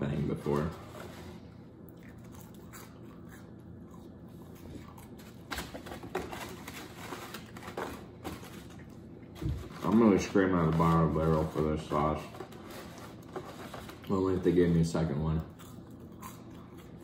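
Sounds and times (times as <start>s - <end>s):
person chewing: 1.8s - 5.5s, 15.4s - 17.0s.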